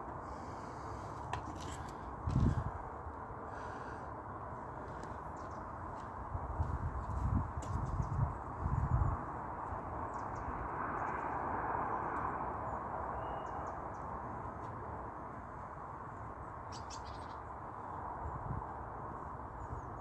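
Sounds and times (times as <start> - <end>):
rushing outdoor noise with rumble: 0.0 - 20.0
faint bird chirps: 13.2 - 13.8.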